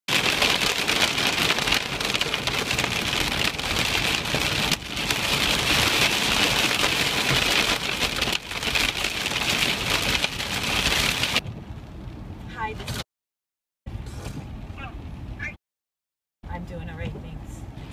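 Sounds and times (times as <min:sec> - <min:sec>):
heavy rain on car windshield: 0:00.1 - 0:11.4.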